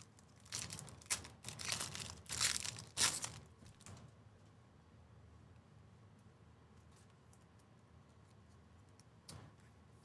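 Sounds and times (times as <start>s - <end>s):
plastic wrapper tearing and crinkling: 0.0s - 3.9s.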